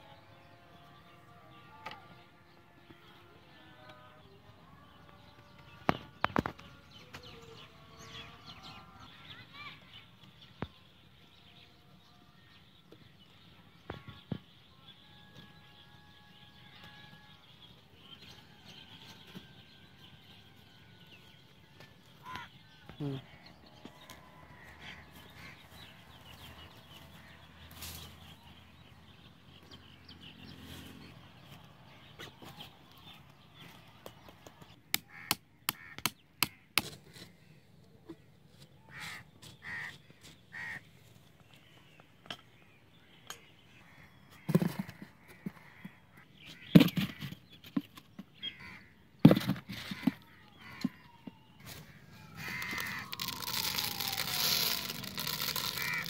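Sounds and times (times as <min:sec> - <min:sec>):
crows cawing: 0:38.9 - 0:39.9, 0:40.5 - 0:40.8, 0:49.9 - 0:51.1, 0:51.7 - 0:53.6, 0:55.2 - 0:56.0.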